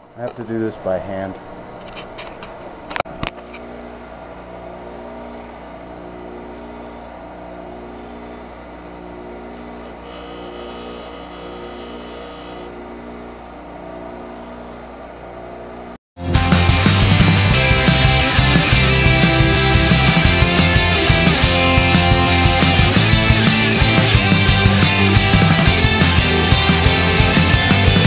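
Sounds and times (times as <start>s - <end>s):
bench grinder motor hum: 3.2s - 16.0s, 16.8s - 28.0s
metal grinding hiss: 9.7s - 12.8s.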